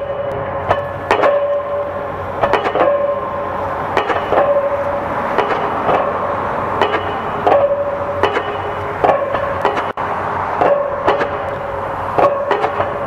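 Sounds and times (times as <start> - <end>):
pile hammer blows: 0.0 - 6.2, 6.8 - 10.0, 10.6 - 13.0
low rumble of machinery: 0.0 - 13.0.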